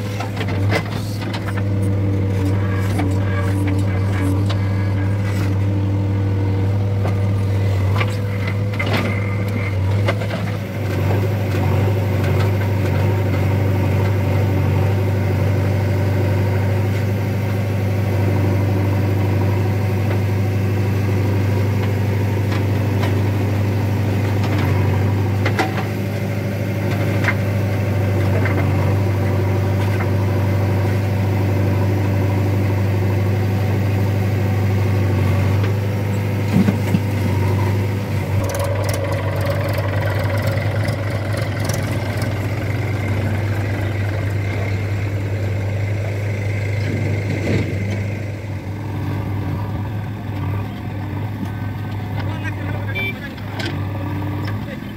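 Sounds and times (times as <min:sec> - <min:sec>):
diesel engine running: 0:00.0 - 0:54.9
tractor engine idling: 0:35.7 - 0:54.9.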